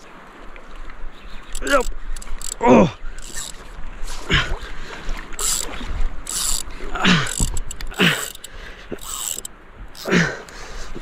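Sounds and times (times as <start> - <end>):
spinning reel gears whirring: 1.5 - 2.6, 3.2 - 3.6, 5.4 - 10.1
lure line swishing: 3.2 - 3.7, 5.4 - 6.7.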